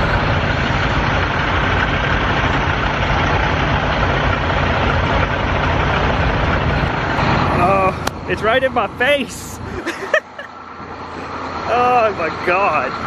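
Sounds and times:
wind rushing: 0:00.0 - 0:02.3
diesel truck engines idling: 0:00.0 - 0:13.0.

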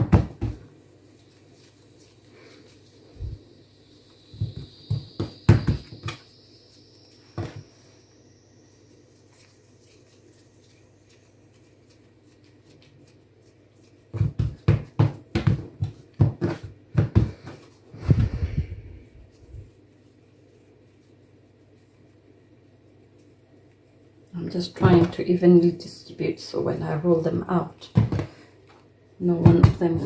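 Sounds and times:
dough patted by hand thumping: 0:00.0 - 0:00.7, 0:04.3 - 0:06.2, 0:14.0 - 0:18.5, 0:29.4 - 0:30.0.

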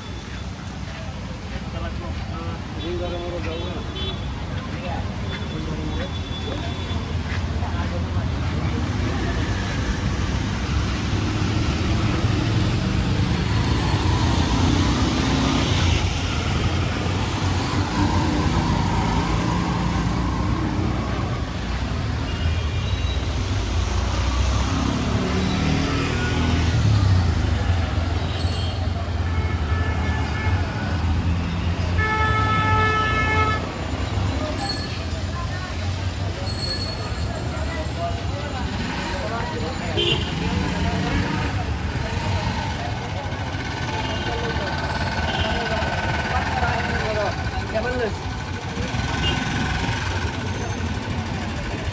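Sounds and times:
road noise: 0:00.0 - 0:51.9
vehicle engines running: 0:04.4 - 0:22.3, 0:33.6 - 0:51.9
car horn: 0:31.9 - 0:33.7, 0:40.0 - 0:40.4.

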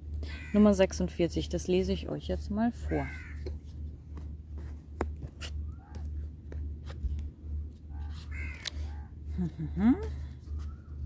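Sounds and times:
crow cawing: 0:00.3 - 0:00.7, 0:02.8 - 0:03.5, 0:08.3 - 0:09.1.

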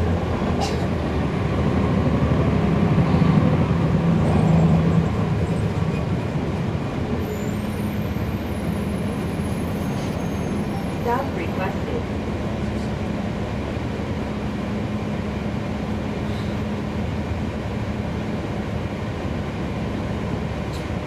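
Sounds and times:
bus diesel engine under load: 0:00.0 - 0:21.0.

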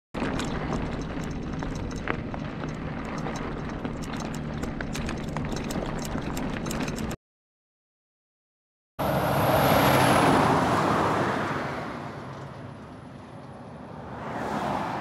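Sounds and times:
bicycle rolling on gravel: 0:00.2 - 0:07.0
rattling clicks: 0:00.2 - 0:07.2.

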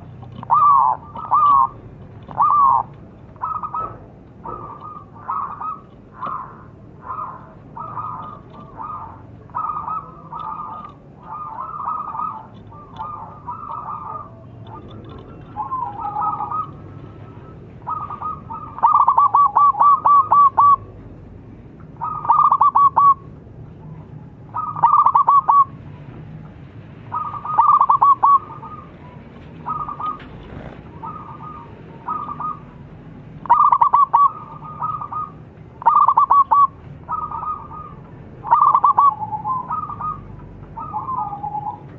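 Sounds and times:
dove cooing: 0:00.0 - 0:21.0, 0:21.9 - 0:25.8, 0:27.1 - 0:32.8, 0:33.4 - 0:41.9.

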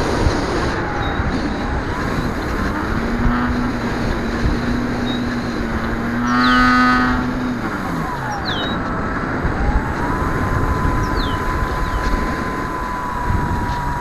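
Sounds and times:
electric motor whining: 0:00.0 - 0:14.0
steady background noise: 0:00.0 - 0:14.0
high bird chirps: 0:06.0 - 0:07.5, 0:08.1 - 0:08.9, 0:10.6 - 0:13.0.

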